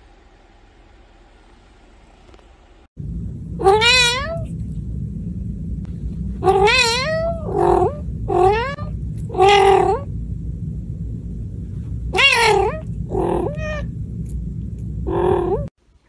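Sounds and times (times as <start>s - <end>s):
steady low hum: 0.0s - 16.0s
cat meowing: 3.6s - 4.4s, 6.4s - 10.0s, 12.1s - 13.9s.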